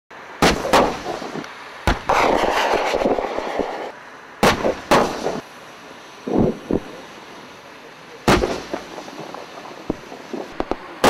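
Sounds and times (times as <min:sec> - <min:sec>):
crackle and rumble: 0:00.1 - 0:11.0
echoing gunshots: 0:00.4 - 0:05.4, 0:08.3 - 0:10.8.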